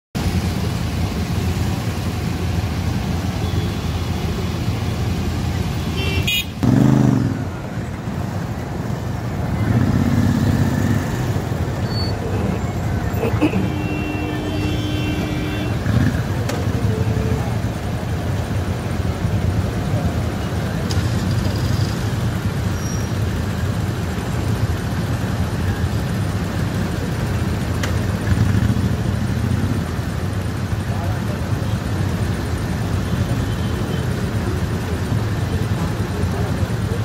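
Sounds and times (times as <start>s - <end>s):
motorcycle engines idling: 0.2s - 37.0s
vehicle horn: 3.4s - 4.1s, 5.7s - 6.7s, 13.4s - 16.1s.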